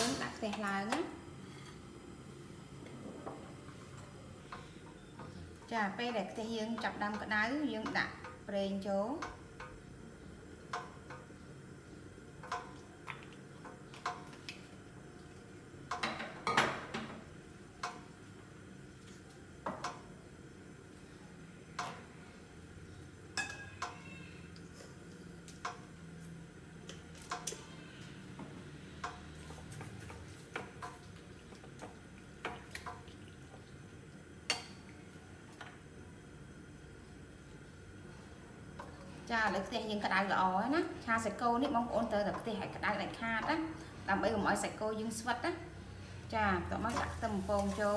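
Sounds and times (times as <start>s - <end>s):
faint steady hum: 0.0s - 47.9s
dishes and utensils clinking: 23.4s - 24.1s.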